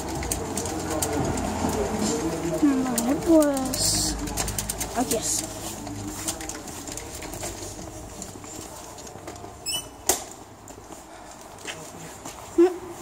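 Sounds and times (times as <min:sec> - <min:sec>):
door creaking: 0:09.6 - 0:10.3.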